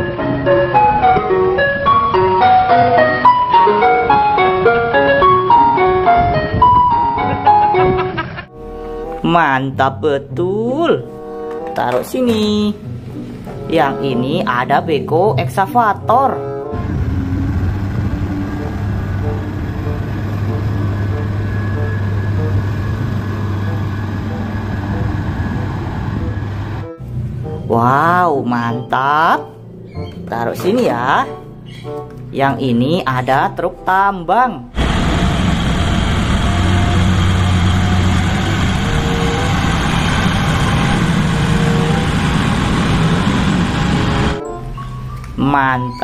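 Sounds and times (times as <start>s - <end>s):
excavator diesel engine running: 16.7s - 27.6s, 34.8s - 44.4s.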